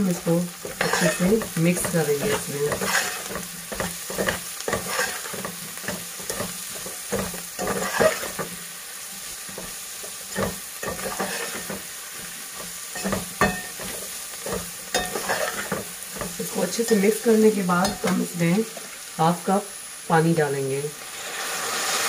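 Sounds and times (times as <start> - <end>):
frying sizzle: 0.0 - 22.0
metal spatula scraping pot: 0.1 - 8.6, 9.2 - 18.3.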